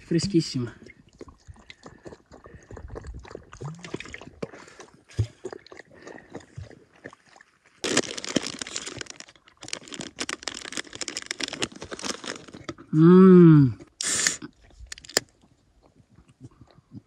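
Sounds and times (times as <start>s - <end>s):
small clicks and splashes: 0.2s - 12.9s, 13.8s - 17.0s
dog lapping water: 0.6s - 7.9s
paper wrapper tearing and crinkling: 7.8s - 12.8s, 14.0s - 15.2s.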